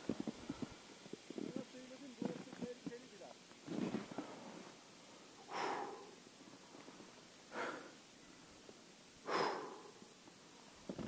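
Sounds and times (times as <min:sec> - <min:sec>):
man breathing hard: 0:05.2 - 0:06.2, 0:07.5 - 0:08.6, 0:09.2 - 0:10.2.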